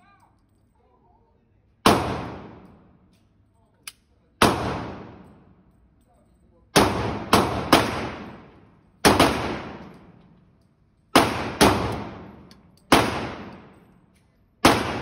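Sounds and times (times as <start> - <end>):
echoing pistol shots: 1.8 - 2.8, 4.4 - 5.3, 6.8 - 10.2, 11.1 - 13.8, 14.6 - 15.0.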